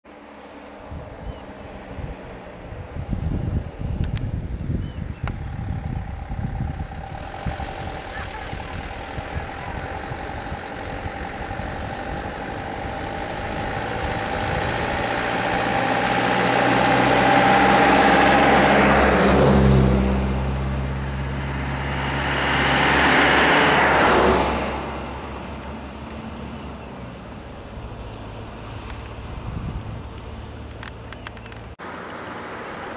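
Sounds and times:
bus passing alongside: 0:00.1 - 0:32.9
minibus passing by: 0:00.1 - 0:32.9.

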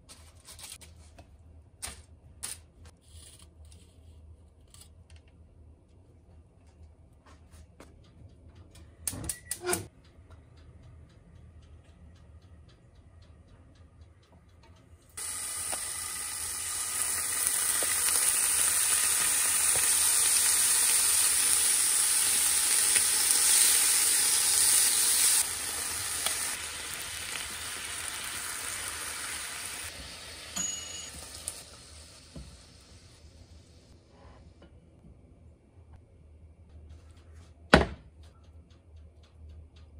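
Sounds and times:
beef sizzling in frying pan: 0:15.2 - 0:32.7.

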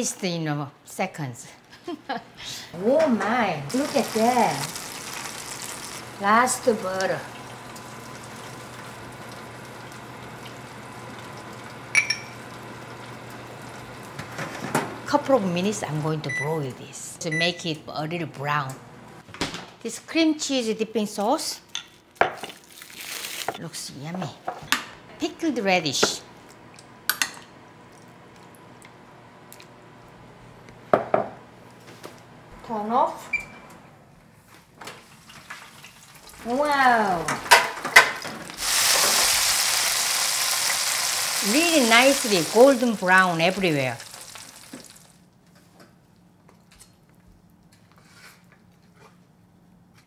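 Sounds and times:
faint sizzle from roasting pan: 0:03.7 - 0:14.3, 0:38.5 - 0:45.2
spoon clinking on dish: 0:12.0 - 0:12.4.

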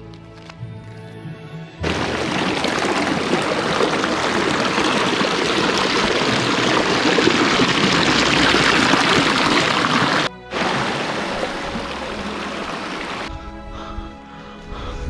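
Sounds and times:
stream splashing over rocks: 0:01.8 - 0:13.3.

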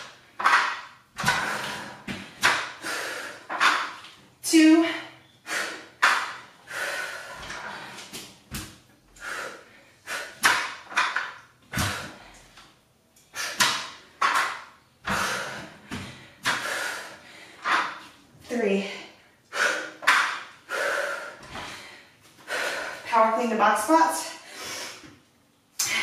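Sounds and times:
dumbbells thudding on rubber mat: 0:00.0 - 0:02.8, 0:10.4 - 0:12.2, 0:20.0 - 0:20.5
woman exhaling forcefully: 0:15.1 - 0:17.3.

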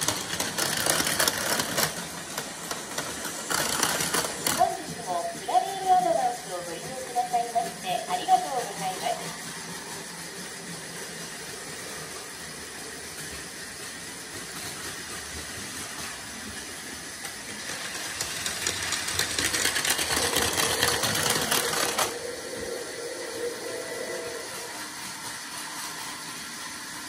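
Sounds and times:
wheels clattering on plastic track: 0:00.0 - 0:08.2, 0:13.1 - 0:22.2
toy train motor whirring: 0:00.0 - 0:27.0.

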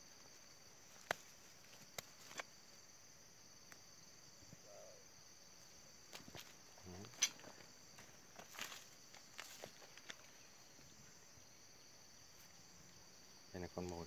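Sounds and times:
crickets chirping: 0:00.0 - 0:14.0
dry twigs and leaves scraping: 0:00.2 - 0:02.6, 0:06.1 - 0:10.9.

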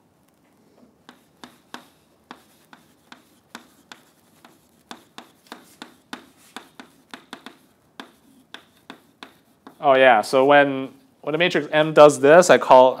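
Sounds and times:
chalk tapping and scraping on blackboard: 0:01.0 - 0:10.2.

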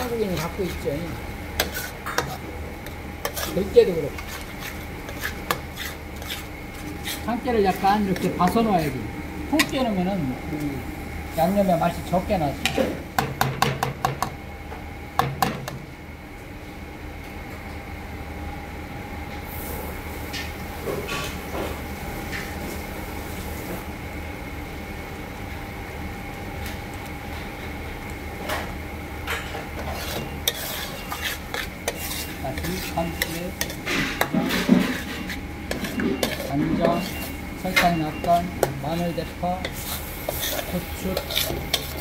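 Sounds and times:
machine hum with high whine: 0:00.0 - 0:42.0
utensils scraping metal pans: 0:01.6 - 0:02.5, 0:03.2 - 0:09.0, 0:29.3 - 0:42.0.

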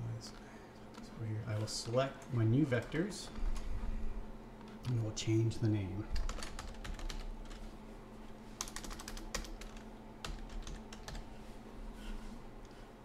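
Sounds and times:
keyboard typing: 0:06.2 - 0:07.6, 0:08.6 - 0:11.3.

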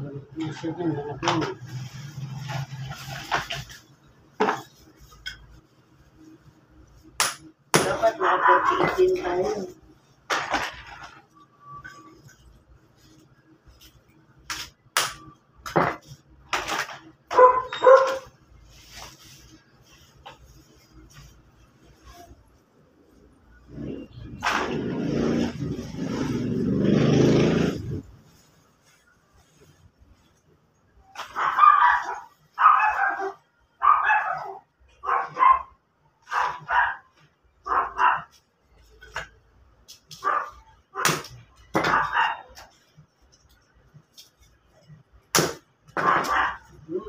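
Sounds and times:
dog barking: 0:08.2 - 0:09.0, 0:17.3 - 0:18.3, 0:31.2 - 0:38.4, 0:40.2 - 0:41.2, 0:41.8 - 0:42.6, 0:46.0 - 0:46.8.

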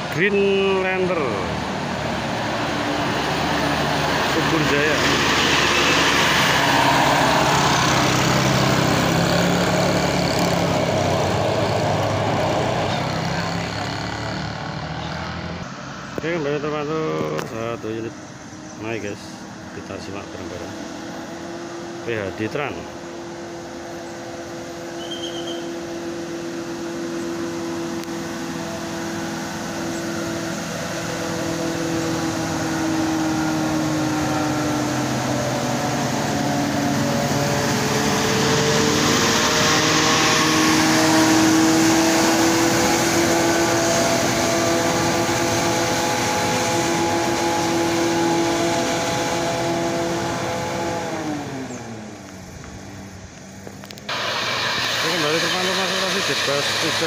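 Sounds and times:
bus diesel engine climbing: 0:00.0 - 0:57.0
bus hiss: 0:54.1 - 0:57.0.

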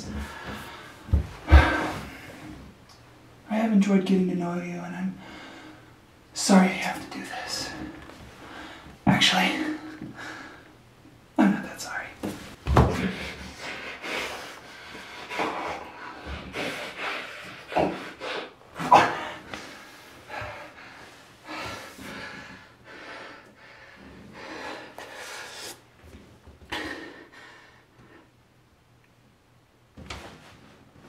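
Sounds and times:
man snorting breaths: 0:00.1 - 0:02.6, 0:12.9 - 0:25.8.

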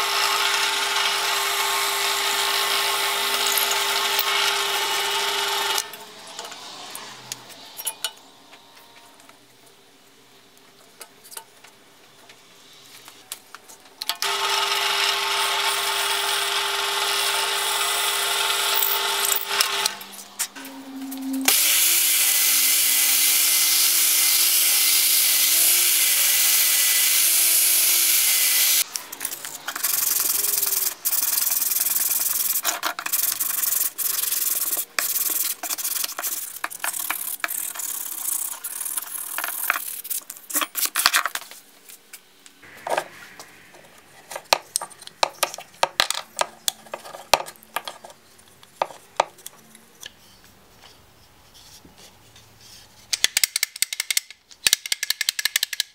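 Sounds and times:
electric belt sander running: 0:14.2 - 0:20.0, 0:21.5 - 0:28.8.

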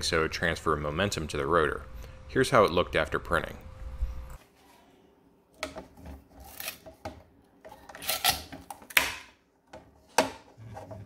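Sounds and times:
scraping and rubbing: 0:10.4 - 0:11.0.

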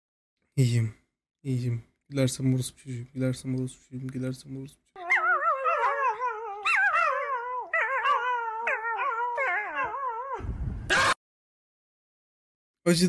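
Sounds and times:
puppy howling: 0:05.0 - 0:11.2.

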